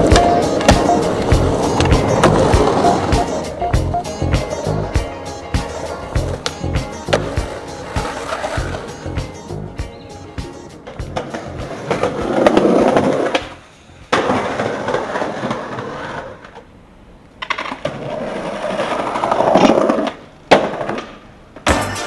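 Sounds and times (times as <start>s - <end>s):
skateboard clack: 0.0s - 9.4s, 10.5s - 16.7s, 17.3s - 22.0s
skateboard wheels rolling on concrete: 0.0s - 21.8s.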